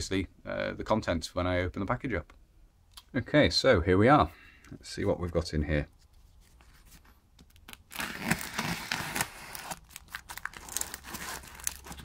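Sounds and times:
knife slitting packing tape: 0:07.9 - 0:12.0.

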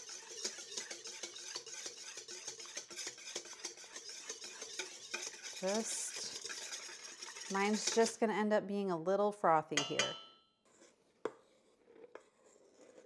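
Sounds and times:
whisk clinking against metal bowl: 0:00.0 - 0:08.3, 0:09.8 - 0:10.3.

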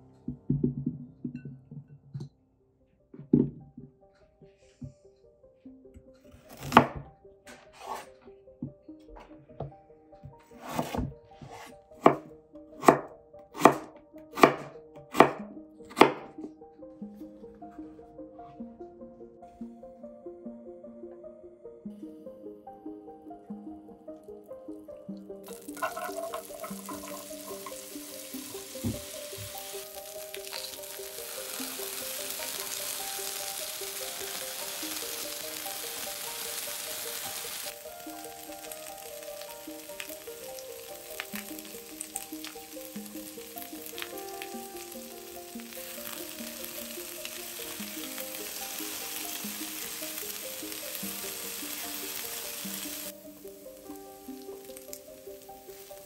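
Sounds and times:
potatoes sizzling in a pan: 0:25.4 - 0:56.0.

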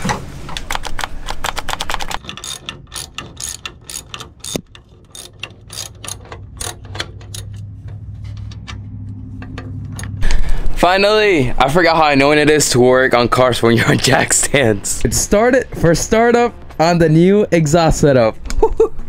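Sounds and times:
socket ratchet clicking: 0:00.6 - 0:07.8
low steady hum: 0:02.2 - 0:19.0.

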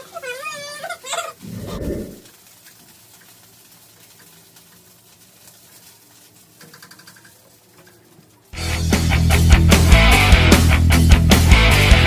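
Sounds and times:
faint kitchen sounds: 0:00.0 - 0:08.6
loud rock music with guitar: 0:08.6 - 0:12.0.

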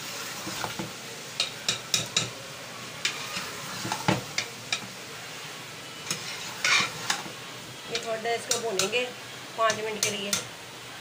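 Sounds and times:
food sizzling in a pot: 0:00.0 - 0:11.0
spoon scraping and knocking pot: 0:06.1 - 0:07.3.

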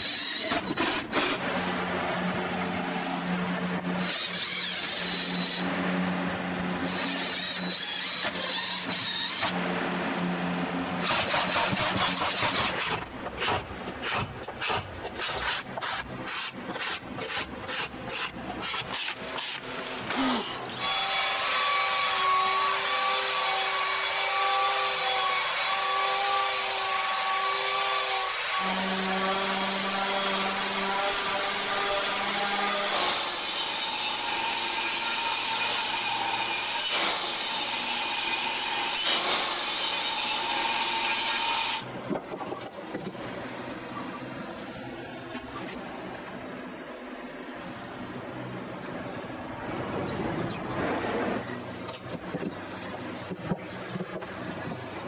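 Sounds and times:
power tool running: 0:00.0 - 0:35.6
hand scraper scraping wood: 0:11.0 - 0:20.8.

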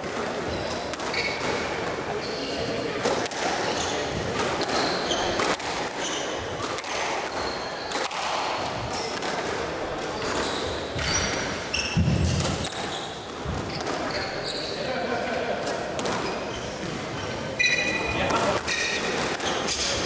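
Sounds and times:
shoes squeaking on wooden floor: 0:00.4 - 0:02.6, 0:03.6 - 0:08.0, 0:10.1 - 0:14.9
squash ball cracking off walls: 0:04.2 - 0:10.4, 0:18.3 - 0:20.0.

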